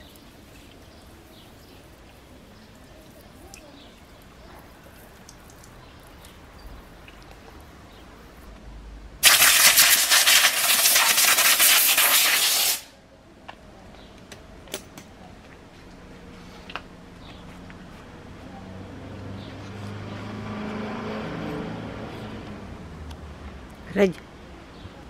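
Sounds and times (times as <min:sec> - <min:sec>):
compressed air blast through hose: 0:09.2 - 0:13.0.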